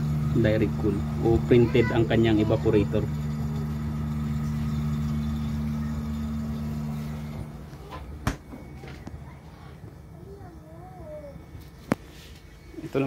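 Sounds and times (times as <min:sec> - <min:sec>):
freezer humming: 0:00.0 - 0:13.0.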